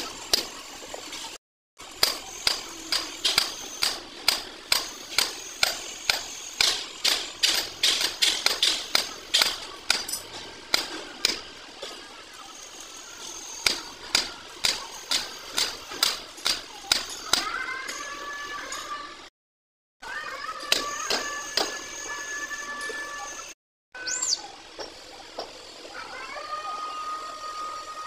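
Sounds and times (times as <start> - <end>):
hammer striking steel: 0.0 - 0.6, 1.8 - 12.0, 13.2 - 18.2, 20.6 - 22.0.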